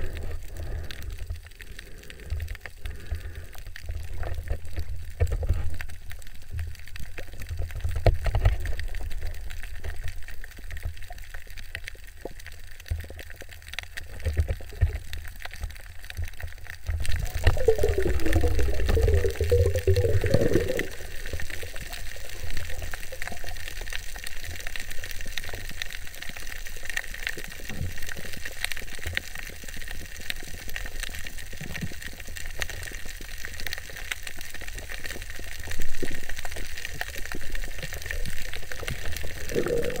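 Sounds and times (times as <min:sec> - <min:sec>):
muffled underwater rumble: 0:00.0 - 0:26.2, 0:31.3 - 0:40.0
wavering gurgle: 0:16.8 - 0:23.2, 0:38.2 - 0:40.0.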